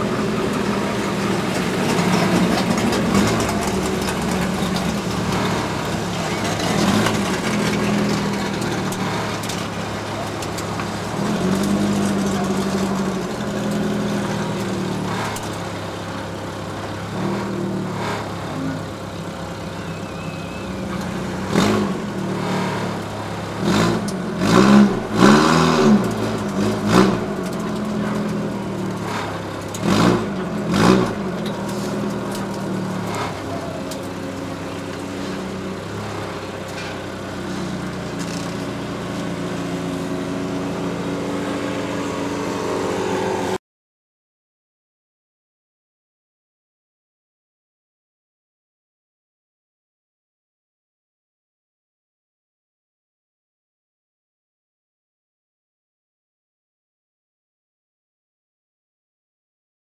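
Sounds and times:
car engine revving: 0.0s - 43.6s.

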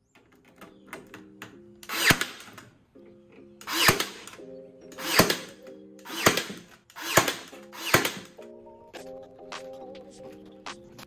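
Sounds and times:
background music with low chords: 0.3s - 11.0s
power tool bursts on wood: 1.8s - 2.6s, 3.6s - 4.3s, 5.0s - 5.5s, 6.1s - 8.3s.

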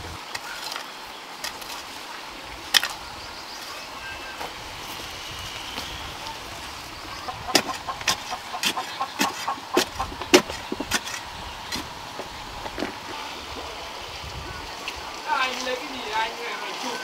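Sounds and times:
steady background hiss: 0.0s - 17.0s
sharp knocks: 7.5s - 11.1s.

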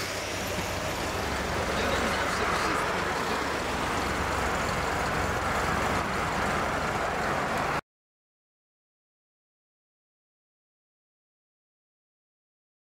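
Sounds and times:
cars driving past: 0.0s - 7.8s.

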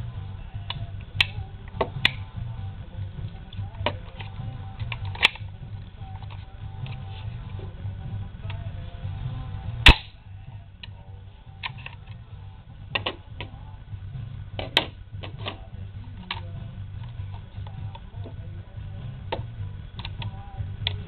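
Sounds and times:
loud sharp snap: 9.8s - 10.2s.

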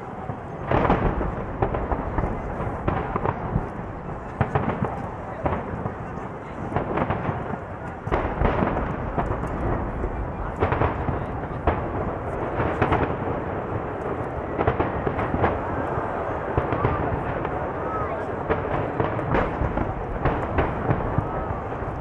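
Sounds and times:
firework bangs: 0.0s - 22.0s
rumble of booms: 0.2s - 22.0s.

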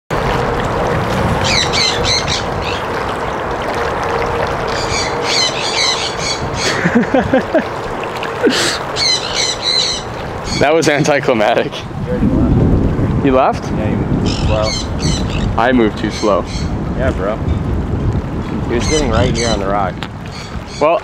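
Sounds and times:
wind noise on microphone: 0.1s - 21.0s
birds squawking: 1.4s - 2.9s, 4.6s - 6.9s, 8.2s - 11.0s, 14.2s - 16.8s, 18.7s - 21.0s.

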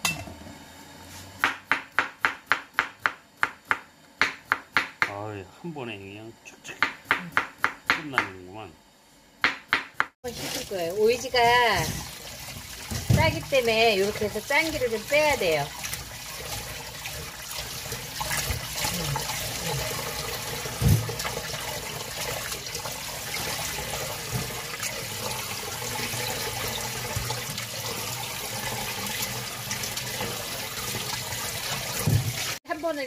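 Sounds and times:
thump: 32.0s - 32.3s.

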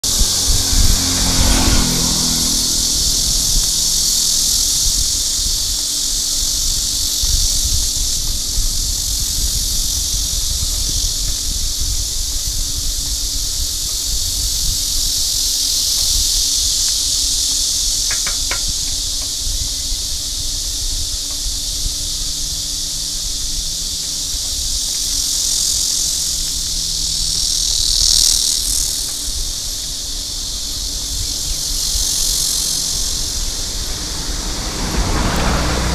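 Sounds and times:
high-pitched insect drone: 0.0s - 35.9s
wind buffeting microphone: 0.0s - 35.9s.

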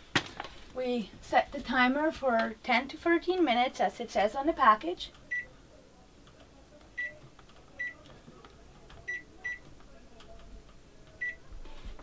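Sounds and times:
microwave keypad beeps: 5.3s - 5.5s, 7.0s - 7.2s, 7.8s - 8.0s, 9.1s - 9.6s, 11.2s - 11.4s.

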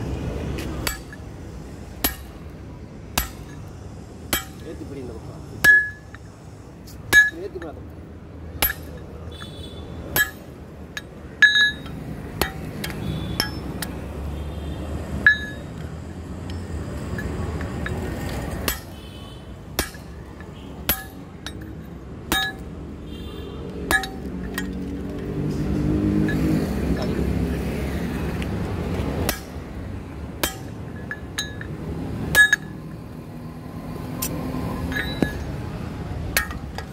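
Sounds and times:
hammer clinking on anvil: 0.8s - 1.3s, 2.0s - 2.4s, 3.2s - 3.7s, 4.3s - 4.8s, 5.6s - 6.3s, 7.1s - 7.8s, 8.6s - 9.2s, 10.1s - 14.0s, 15.2s - 19.0s, 19.8s - 22.8s, 23.8s - 24.8s, 26.2s - 27.2s, 29.2s - 29.6s, 30.4s - 32.9s, 34.2s - 35.6s, 36.3s - 36.9s.

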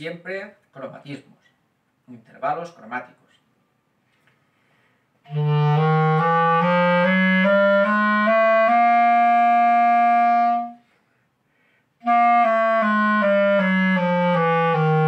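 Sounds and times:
clarinet playing rising notes: 5.2s - 10.8s, 12.0s - 15.0s.

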